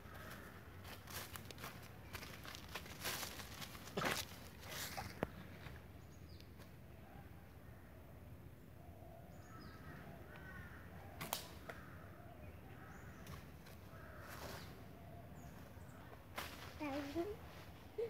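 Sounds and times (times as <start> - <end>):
sharp snap: 11.2 - 11.8.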